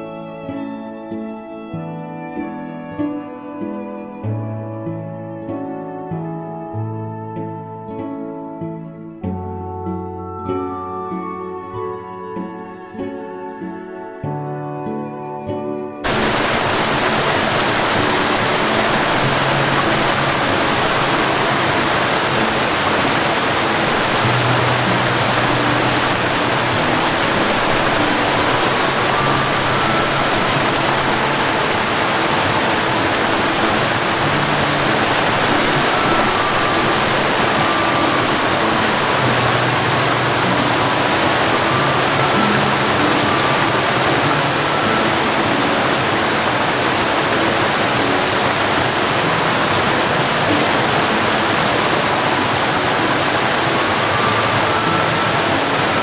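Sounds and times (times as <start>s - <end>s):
faint musical tones: 0.0s - 56.0s
waterfall rushing: 16.0s - 56.0s.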